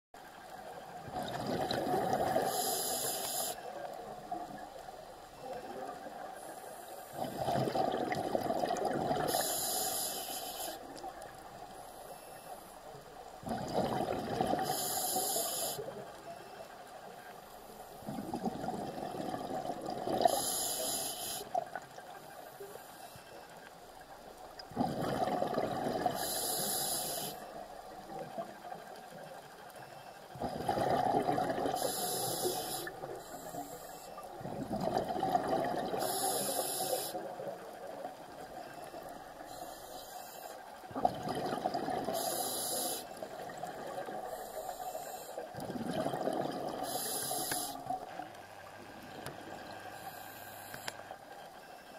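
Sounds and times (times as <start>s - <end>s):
diver breathing through regulator: 2.1s - 3.6s, 9.2s - 10.8s, 14.5s - 15.9s, 20.2s - 21.6s, 25.9s - 27.5s, 30.7s - 34.2s, 35.9s - 37.3s, 41.9s - 43.2s, 46.2s - 48.0s, 49.7s - 51.1s.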